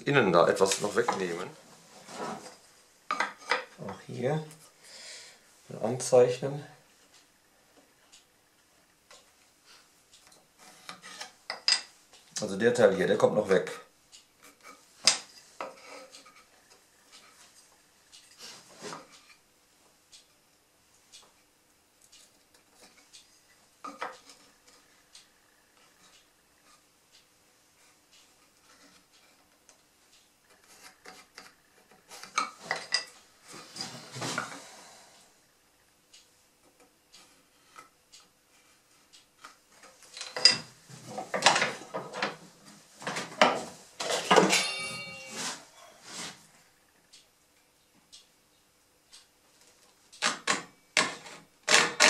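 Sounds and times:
wooden pieces clicking: 0:30.5 - 0:33.1, 0:50.2 - 0:52.0
short metallic ring: 0:44.4 - 0:45.6.

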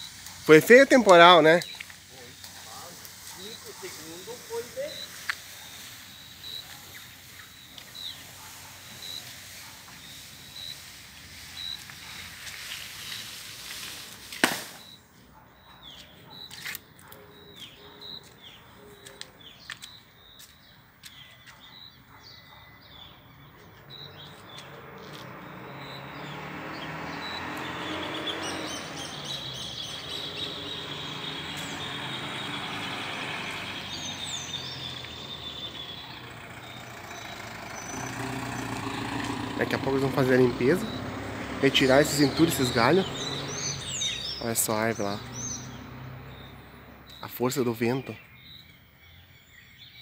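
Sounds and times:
small birds chirping: 0:00.0 - 0:50.0
vehicle engine running: 0:23.8 - 0:44.1.

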